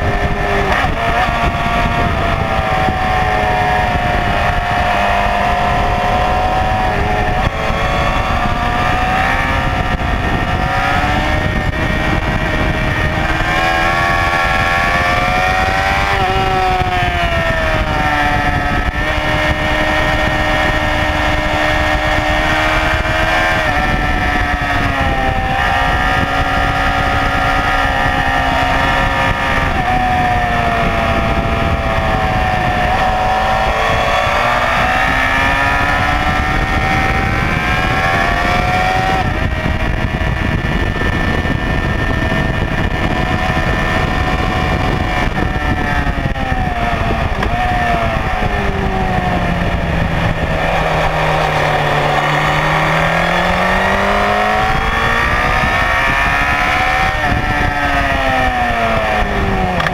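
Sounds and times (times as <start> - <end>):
motorcycle engine at high revs: 0.0 - 59.9
wind rush: 0.0 - 59.9.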